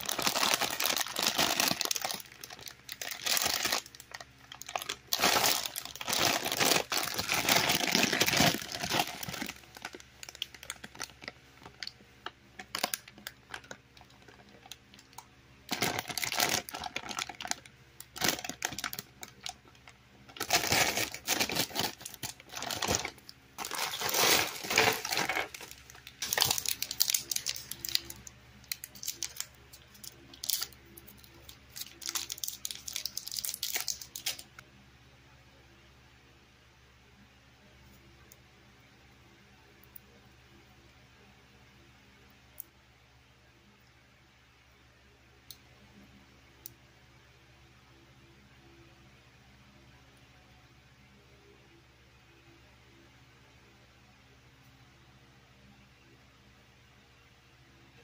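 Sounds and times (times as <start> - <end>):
plastic packaging crinkling: 0.0 - 11.9, 12.6 - 34.6
candy wrapper crinkling: 0.0 - 12.0, 12.6 - 34.6.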